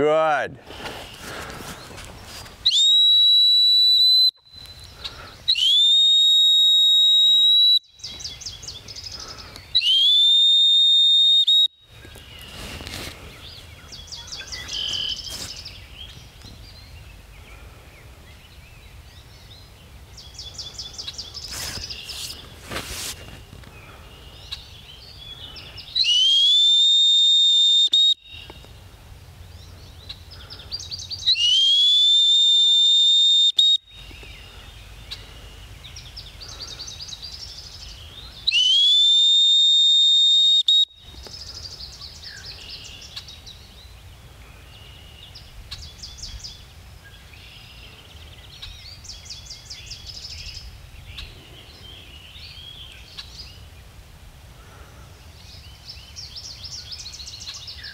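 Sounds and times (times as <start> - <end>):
dog whistle blasts: 2.7 - 4.4, 5.5 - 7.8, 9.8 - 11.8, 26.0 - 28.2, 31.3 - 33.8, 38.5 - 41.0
small birds chirping: 4.4 - 5.7, 7.9 - 10.0, 11.8 - 26.3, 33.9 - 38.7, 41.0 - 54.0, 54.6 - 57.9.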